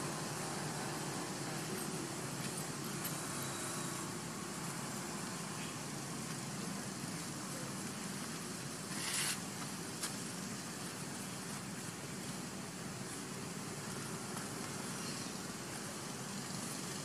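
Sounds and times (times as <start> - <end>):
even hiss: 0.0 - 17.0
short rustle: 8.1 - 10.5.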